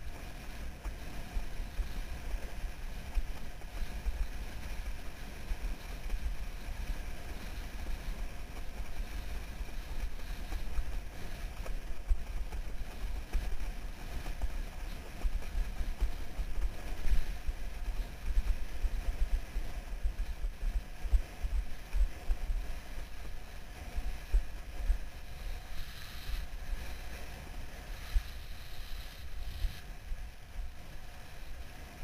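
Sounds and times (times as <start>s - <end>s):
wind buffeting microphone: 0.0s - 32.0s
board hissing across water: 0.2s - 32.0s.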